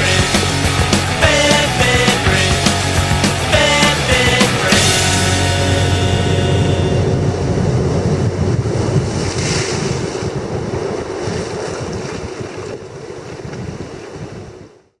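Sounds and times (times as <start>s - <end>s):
wind buffeting microphone: 6.8s - 15.0s.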